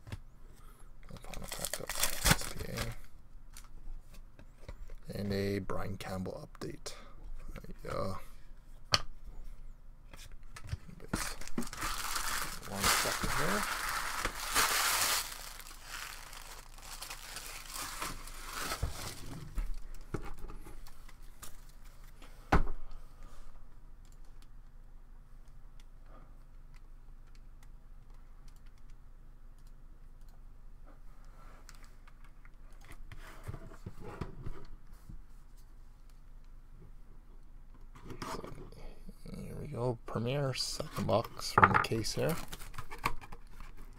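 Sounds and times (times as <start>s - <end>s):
packaging rustling: 1.1s - 3.0s, 11.0s - 20.1s.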